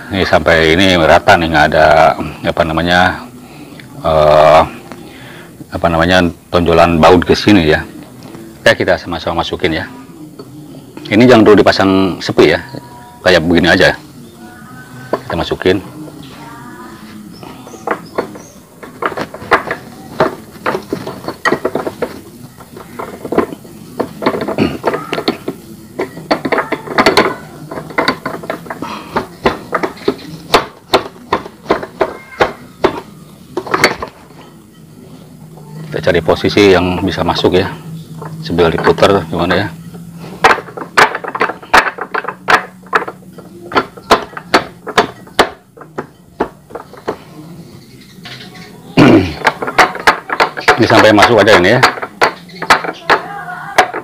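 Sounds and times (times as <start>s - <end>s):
pulley knocking on shaft: 49.4s - 54.0s.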